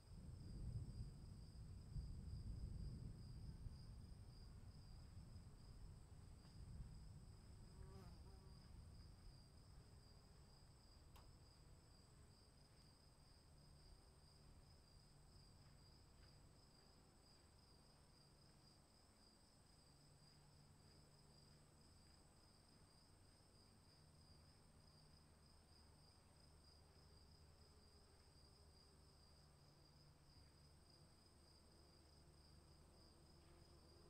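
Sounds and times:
insect chorus: 0.0s - 34.0s.

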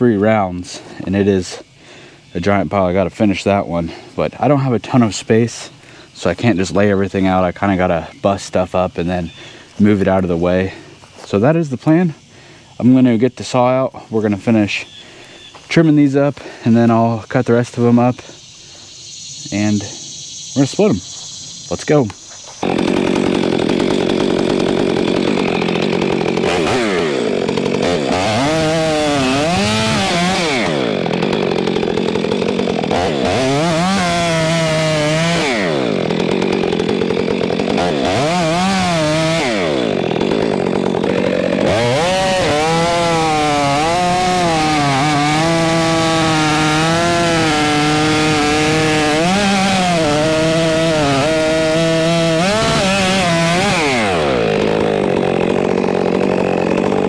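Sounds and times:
chainsaw cutting wood: 21.9s - 57.0s.

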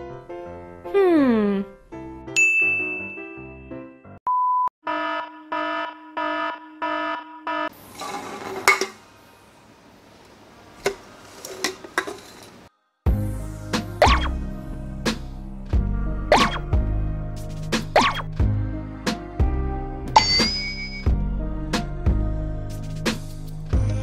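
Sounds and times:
short beep: 4.3s - 4.7s
pulsing alarm tones: 4.8s - 7.7s
bouncy tune: 14.0s - 14.4s, 16.3s - 16.8s.

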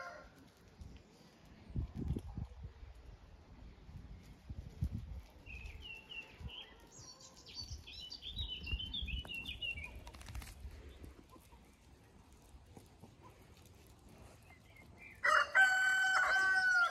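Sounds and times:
puppies' paws on gravel: 0.0s - 3.1s, 3.8s - 16.9s
small bird twittering song: 5.4s - 10.2s, 14.4s - 15.2s.

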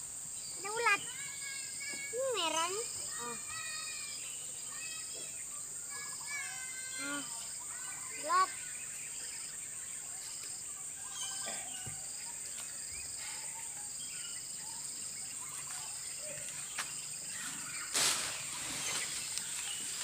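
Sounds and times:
insect trills: 0.0s - 20.0s
insects droning: 0.0s - 20.0s
bird chirps: 0.4s - 20.0s
cloth rustling on microphone: 17.8s - 20.0s.

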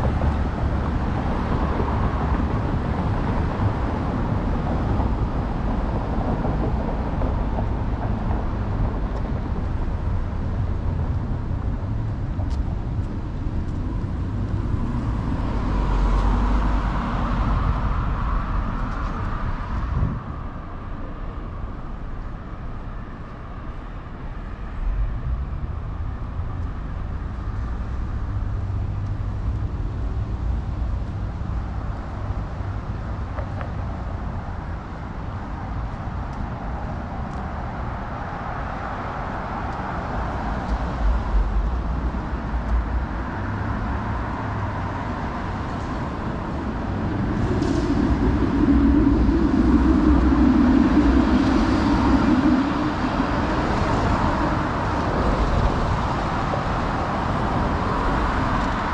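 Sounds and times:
rumble of passing cars: 0.0s - 58.9s
loud vehicle passing: 10.2s - 20.4s, 39.0s - 58.9s.

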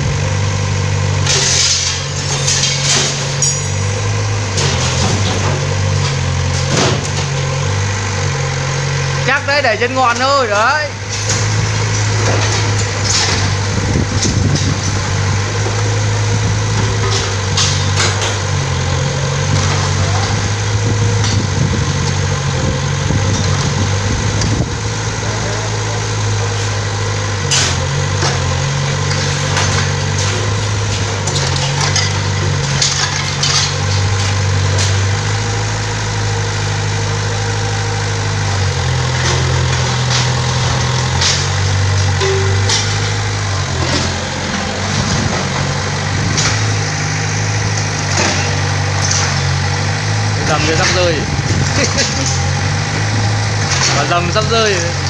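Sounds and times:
excavator diesel engine working: 0.0s - 55.0s.

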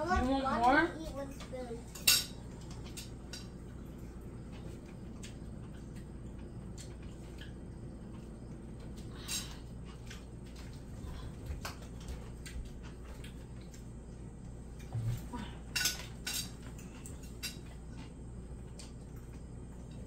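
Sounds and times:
low steady hum: 0.0s - 20.0s
cutlery clinking on plates: 1.3s - 3.7s, 15.7s - 17.8s.

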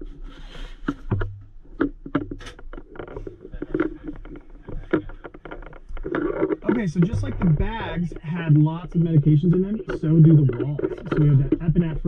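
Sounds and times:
gear knocking and rustling: 0.9s - 12.0s
steady low hum: 2.8s - 12.0s.

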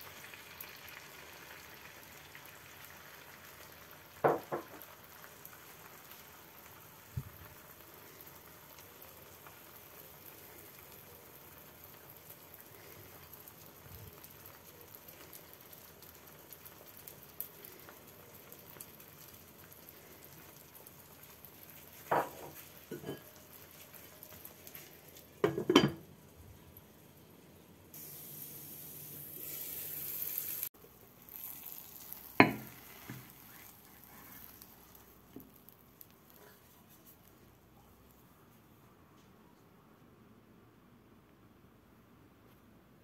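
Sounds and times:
omelette sizzling in a pan: 0.0s - 38.7s
dishes and glass lid clinking: 22.1s - 23.3s, 25.4s - 26.0s.

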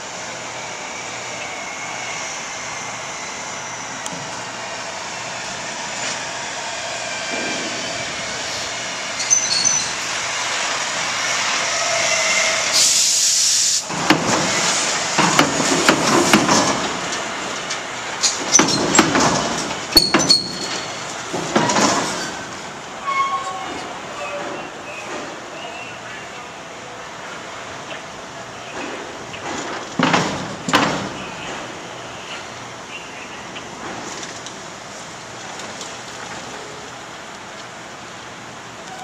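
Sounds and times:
air brake hiss: 12.2s - 15.0s
wheels clanking over metal plates: 13.9s - 25.2s, 28.7s - 31.7s.

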